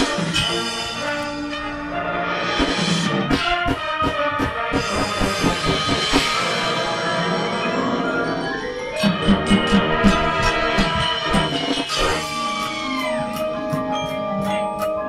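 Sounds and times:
marching band brass chords: 0.0s - 14.2s
quick regular drum strikes: 2.5s - 6.6s.

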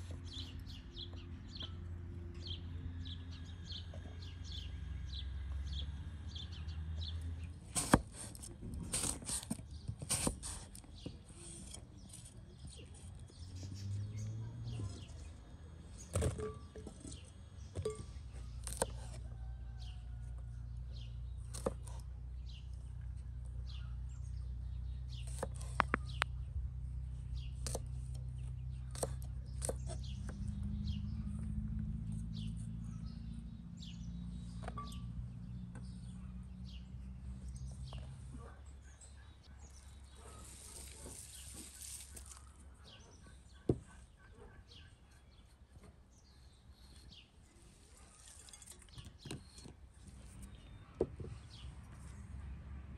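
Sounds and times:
small birds chirping: 0.0s - 52.5s
knife chopping on wooden board: 7.8s - 10.6s, 28.9s - 30.4s.

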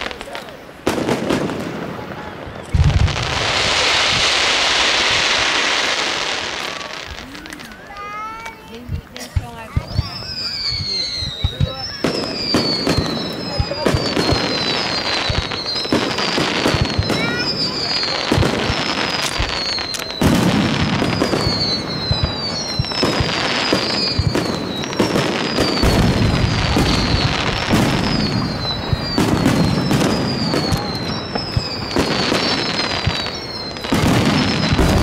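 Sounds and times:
firework bursts and booms: 0.0s - 35.0s
firework whistles sliding down: 9.7s - 35.0s.

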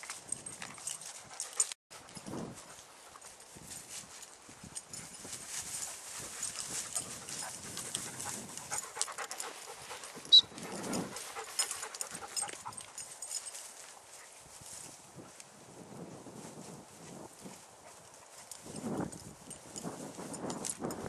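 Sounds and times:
dry grass rustling and crackling: 2.3s - 8.8s, 9.5s - 21.0s
dog panting: 6.3s - 13.1s
sharp high-pitched chirp: 10.2s - 10.6s.

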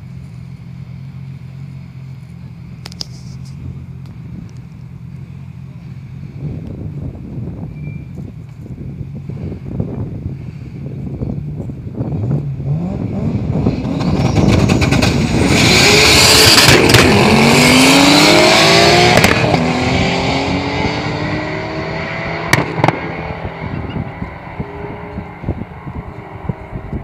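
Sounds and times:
race cars accelerating hard: 12.6s - 27.0s
sharp cracks: 19.1s - 19.6s.

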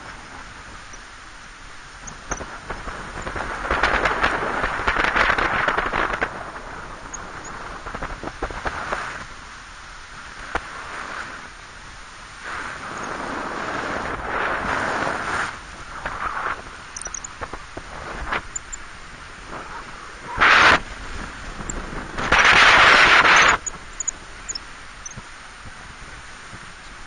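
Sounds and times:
wind rushing over microphone: 0.0s - 27.0s
crackling clicks: 2.0s - 6.4s, 15.9s - 18.8s, 21.6s - 25.3s.

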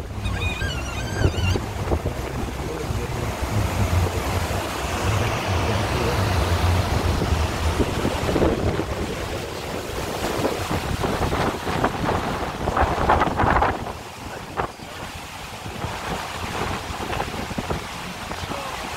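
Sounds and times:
wind buffeting microphone: 0.0s - 18.9s.

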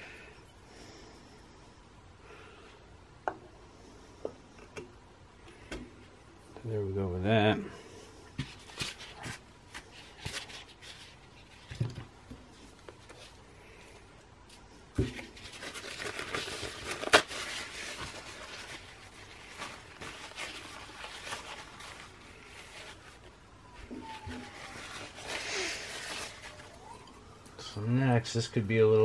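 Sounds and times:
paper rustling: 15.0s - 27.1s.

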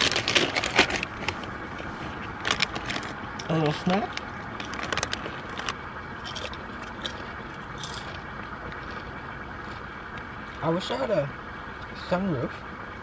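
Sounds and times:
potato chips crunching: 0.0s - 1.2s, 4.6s - 9.8s
foil bag crinkling: 0.0s - 8.2s
low background rumble: 0.0s - 13.0s.

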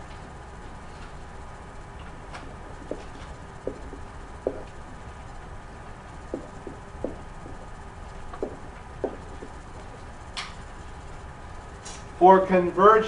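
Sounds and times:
low room hum: 0.0s - 13.0s
pen knocking on whiteboard: 2.8s - 4.7s, 6.3s - 7.7s, 8.3s - 9.9s.

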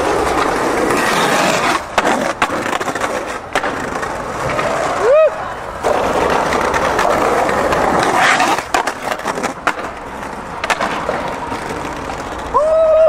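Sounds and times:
skateboard clacking and scraping ledge: 0.0s - 12.6s
skateboard wheels rolling on pavement: 0.0s - 13.0s
person shouting: 12.5s - 13.0s.

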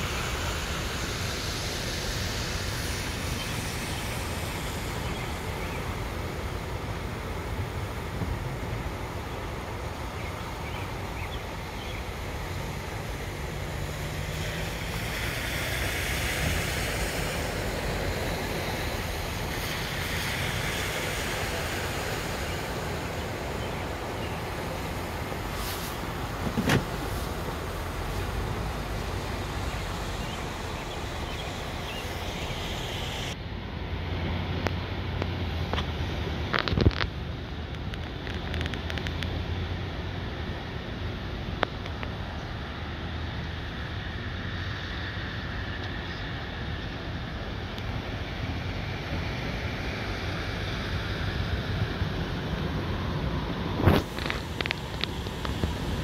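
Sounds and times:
tyres splashing through water: 0.0s - 33.4s
engine hum: 0.0s - 56.0s
wind on microphone: 47.3s - 56.0s.

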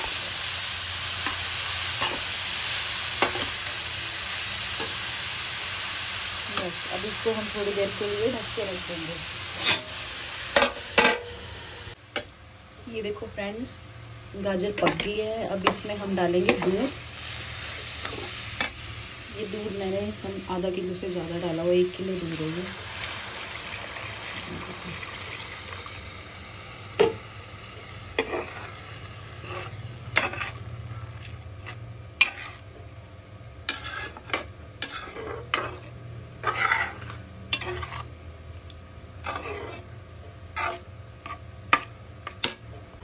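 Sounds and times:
milk hissing in hot pan: 22.2s - 26.9s.

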